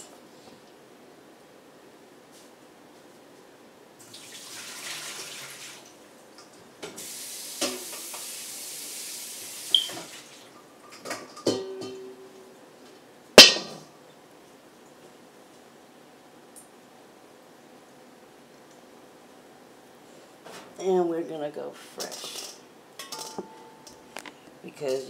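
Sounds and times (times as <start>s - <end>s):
water splashing into a sink: 4.1s - 5.9s, 9.6s - 10.5s
metal bowl clanking: 11.3s - 12.3s.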